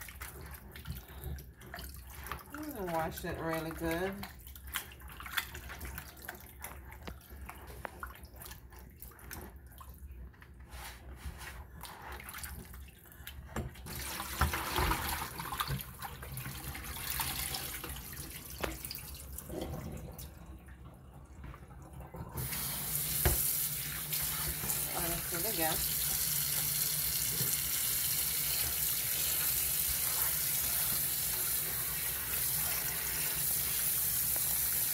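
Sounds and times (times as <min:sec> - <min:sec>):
hands squishing meat in water: 0:00.0 - 0:10.6
faucet running into bowl: 0:22.1 - 0:34.9.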